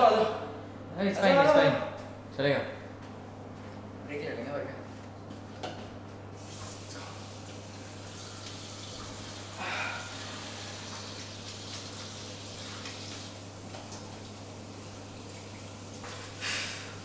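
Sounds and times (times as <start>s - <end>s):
water running: 6.4s - 17.0s.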